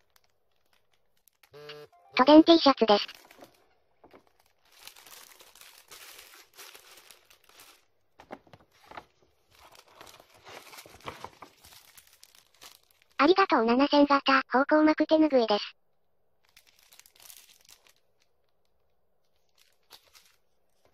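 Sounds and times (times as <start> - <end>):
plastic packaging crinkling: 0.0 - 1.6, 2.8 - 13.2, 16.4 - 20.9.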